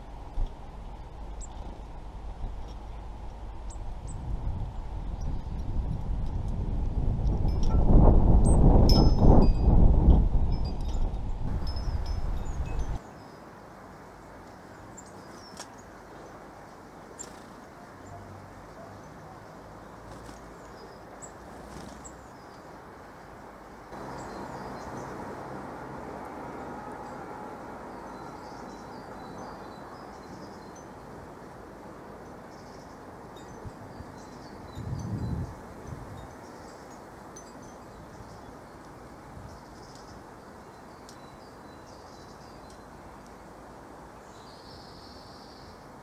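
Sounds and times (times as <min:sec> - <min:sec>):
steady background hiss: 0:11.5 - 0:34.8
small birds chirping: 0:11.6 - 0:22.8, 0:23.9 - 0:25.6, 0:27.9 - 0:31.2, 0:32.0 - 0:43.5, 0:44.1 - 0:46.0
light ticks: 0:41.0 - 0:41.2.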